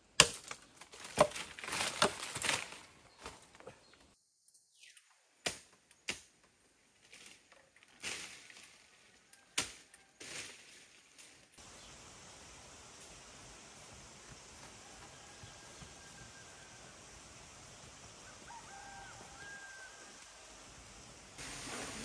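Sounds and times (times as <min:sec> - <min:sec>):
undergrowth rustling: 0:00.2 - 0:04.2, 0:05.4 - 0:22.0
faint outdoor hiss: 0:10.0 - 0:22.0.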